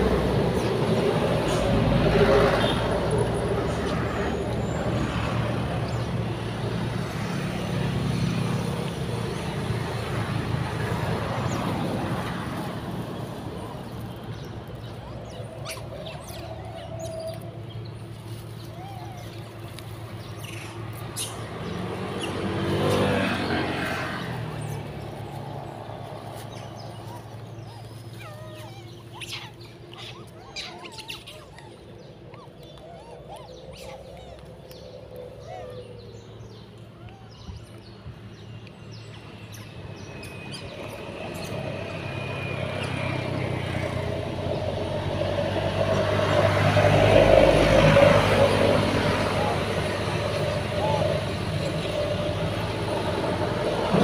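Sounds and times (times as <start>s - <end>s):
monkeys chirping and cooing: 0.0s - 54.0s
vehicle engine passing by: 0.0s - 54.0s.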